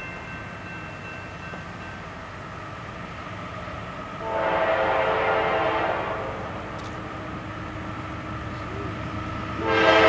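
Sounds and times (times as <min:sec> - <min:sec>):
locomotive horn blast: 0:04.2 - 0:06.7, 0:09.6 - 0:10.0.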